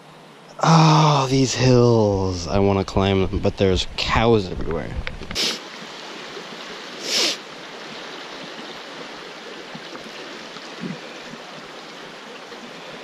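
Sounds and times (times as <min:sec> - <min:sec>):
river water rushing: 0:05.3 - 0:13.0
short loud hiss: 0:05.4 - 0:05.7, 0:07.0 - 0:07.4.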